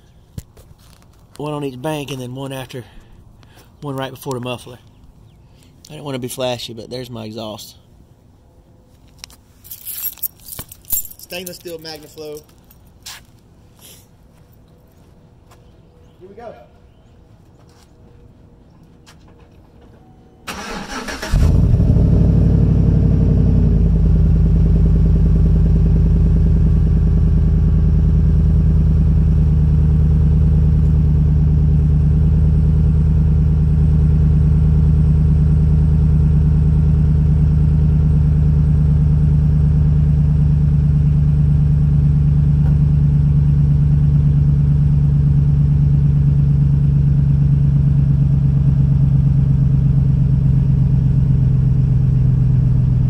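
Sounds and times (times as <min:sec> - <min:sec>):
engine idling: 0:20.5 - 0:53.0.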